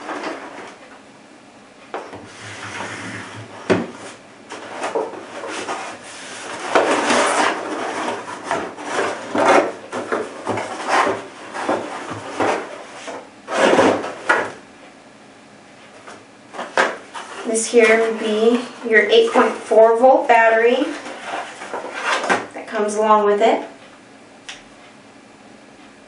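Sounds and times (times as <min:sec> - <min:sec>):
cardboard scraping and rubbing: 0:02.2 - 0:14.4, 0:16.6 - 0:18.6, 0:19.2 - 0:22.4.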